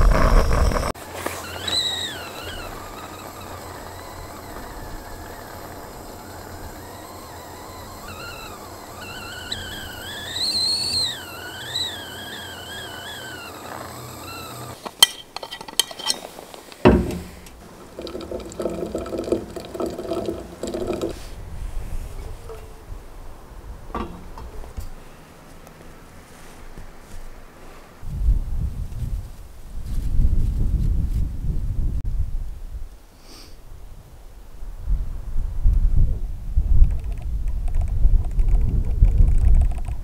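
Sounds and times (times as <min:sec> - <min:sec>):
kettle whistling: 0:00.0 - 0:21.4
hot water pouring into a cup: 0:17.6 - 0:21.2.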